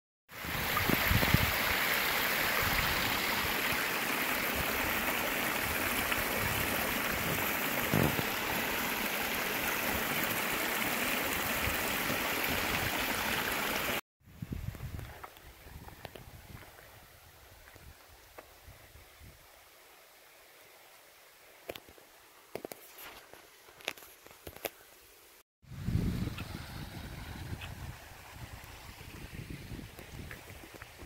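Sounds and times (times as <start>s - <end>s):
small waterfall rushing: 0.3s - 14.0s
low bumps: 6.5s - 8.4s.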